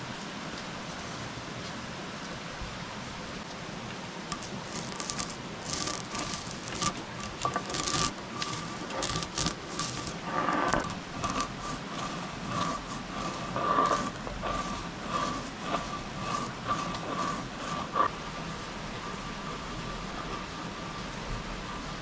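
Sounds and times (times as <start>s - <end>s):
crackles clicks and scrapes: 4.3s - 18.2s.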